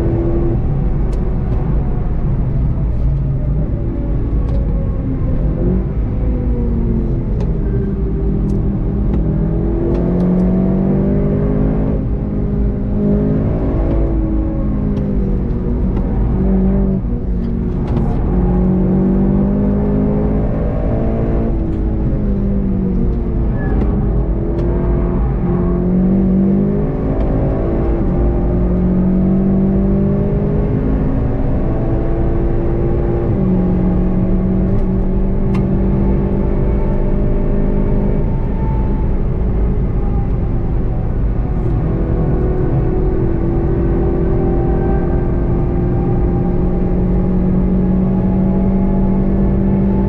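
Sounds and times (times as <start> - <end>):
tyre and road rumble: 0.0 - 32.0
car engine under load: 0.0 - 50.0.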